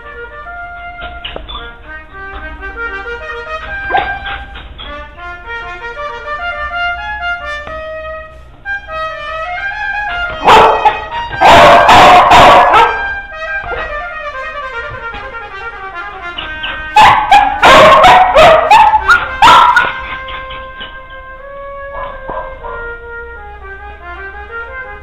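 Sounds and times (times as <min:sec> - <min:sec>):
background music with brass melody: 0:00.0 - 0:25.0
dog barking: 0:03.8 - 0:04.5, 0:10.4 - 0:13.1, 0:17.0 - 0:20.4, 0:21.9 - 0:22.9.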